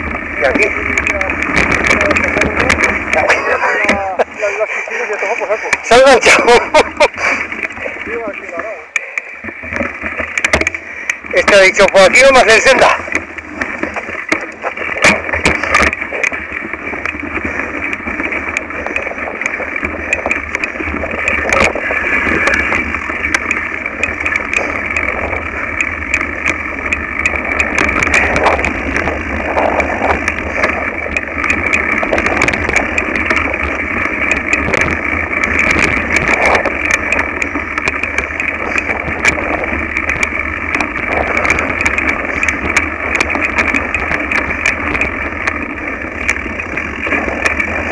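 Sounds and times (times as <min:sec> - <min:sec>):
bike rattles and knocks: 0:00.0 - 0:47.9
bike tyres rumbling on dirt: 0:00.0 - 0:47.9.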